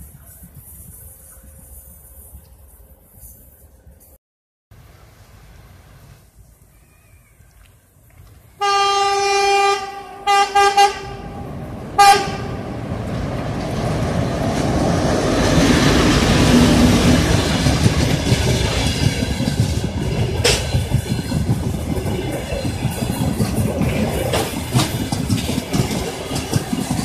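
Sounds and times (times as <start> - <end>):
train engine and wheels rumbling: 0.0 - 4.2, 4.8 - 27.0
locomotive horn blasts: 8.6 - 12.8.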